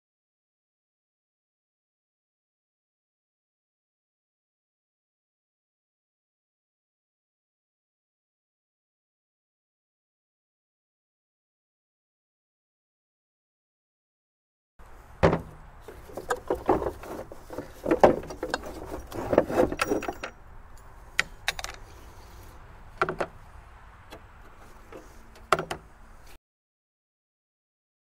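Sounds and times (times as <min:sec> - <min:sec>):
metal parts knocking and clanking: 0:15.2 - 0:20.4, 0:21.2 - 0:21.8.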